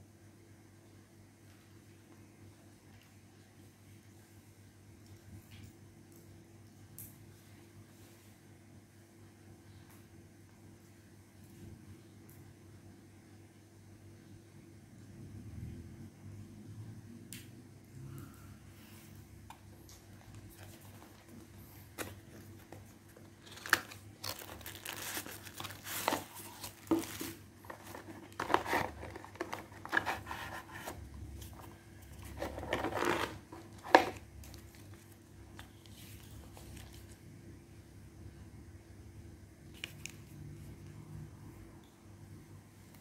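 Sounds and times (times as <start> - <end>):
cardboard and paper rustling: 20.2 - 37.2.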